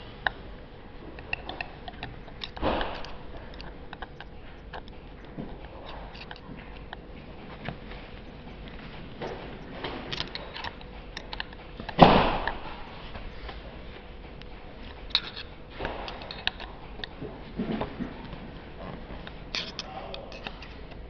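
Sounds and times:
loud knock and rustle: 2.6s - 3.2s, 12.0s - 12.8s
metal pin clicking on housing: 19.5s - 20.7s.

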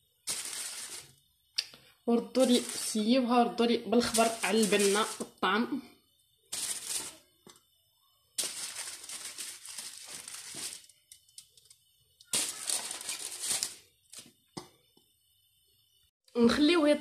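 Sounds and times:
aluminium foil crinkling: 0.2s - 1.2s, 2.3s - 3.1s, 4.0s - 5.4s, 6.5s - 7.6s, 8.4s - 14.4s.

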